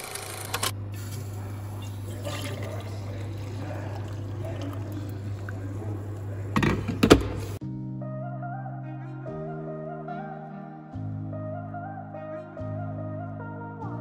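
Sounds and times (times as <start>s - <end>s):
low steady hum: 0.8s - 7.6s
coffee pouring into tumbler: 1.0s - 7.6s.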